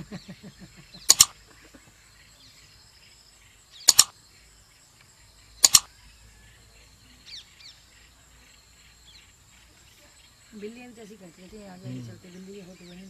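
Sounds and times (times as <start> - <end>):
chirps: 0.0 - 13.0
high insect drone: 0.0 - 13.0
mouse double clicks: 1.1 - 1.4, 3.8 - 4.2, 5.6 - 5.9.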